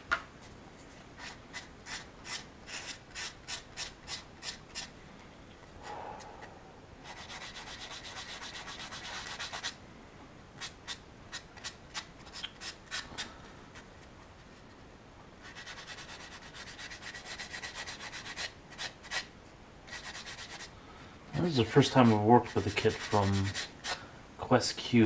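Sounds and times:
sanding stick rubbing resin: 1.2 - 4.9, 7.0 - 9.8, 15.4 - 19.3, 19.9 - 20.7, 21.4 - 24.0.

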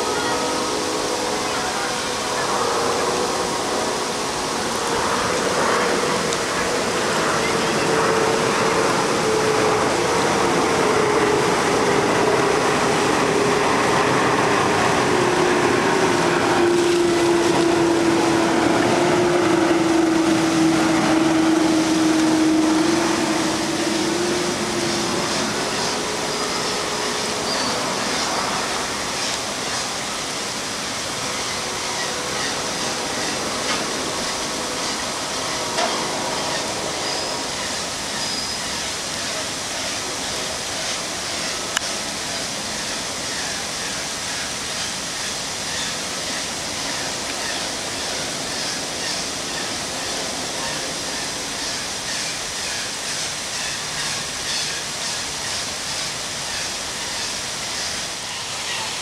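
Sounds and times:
faint voices: 0.0 - 38.1
steady rushing noise: 0.0 - 59.0.

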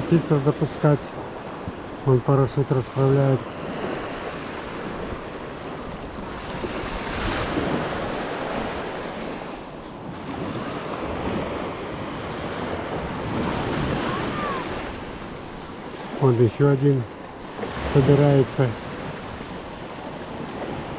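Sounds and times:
small waves washing on sand: 0.0 - 20.9
wind buffeting microphone: 3.7 - 15.9.

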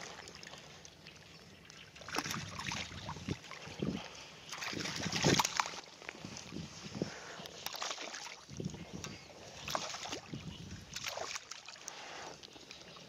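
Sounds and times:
fish splashing at water surface: 4.5 - 6.0, 9.6 - 12.3.

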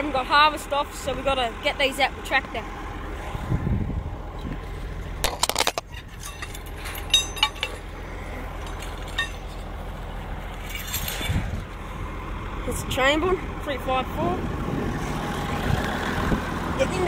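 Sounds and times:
steady low rumble: 0.0 - 17.0
wire fence rattling and clinking: 5.2 - 11.7.

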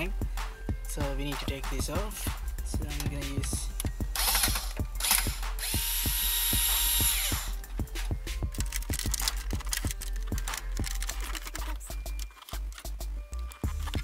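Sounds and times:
background music with steady beat: 0.0 - 14.0
cordless drill whining: 4.2 - 7.6.

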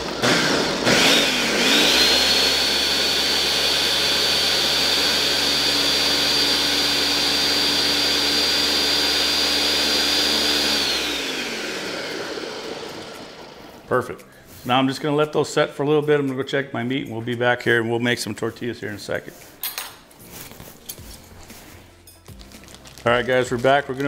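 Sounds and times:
blender motor whining: 0.0 - 13.9.

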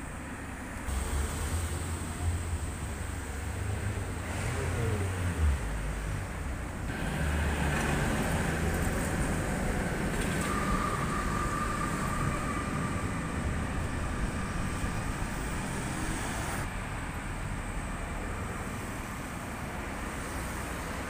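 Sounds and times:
street traffic noise: 0.0 - 21.0
tram rumbling past: 5.7 - 21.0.

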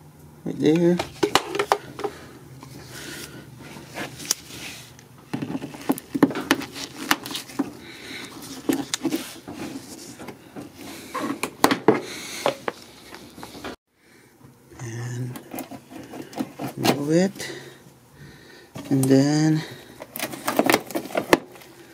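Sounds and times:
hand tools clicking and scraping: 15.4 - 17.5.

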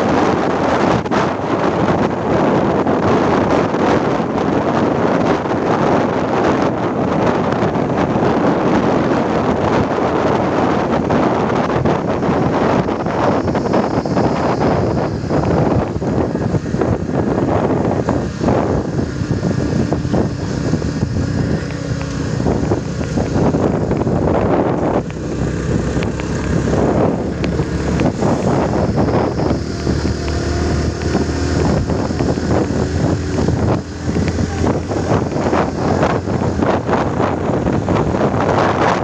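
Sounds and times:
motorcycle engine hum: 0.0 - 39.0
wind buffeting microphone: 0.0 - 39.0.

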